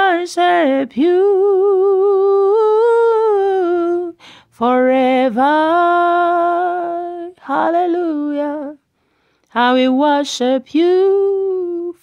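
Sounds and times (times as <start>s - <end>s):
woman singing unaccompanied: 0.0s - 12.0s
woman breathing in: 4.2s - 4.5s, 8.9s - 9.5s.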